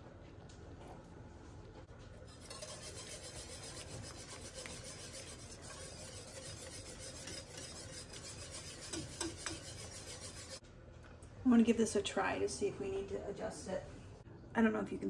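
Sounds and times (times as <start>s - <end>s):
whisk scraping a pan: 2.2s - 10.6s.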